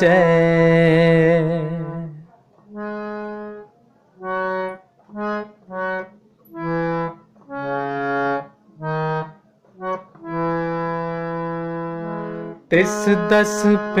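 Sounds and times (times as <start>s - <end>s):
harmonium melody: 0.0s - 14.0s.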